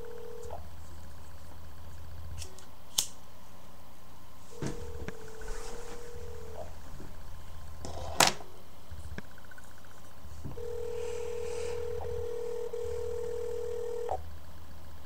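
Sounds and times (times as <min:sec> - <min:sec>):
telephone line tone: 0:00.0 - 0:00.6, 0:04.7 - 0:06.7, 0:10.5 - 0:14.2.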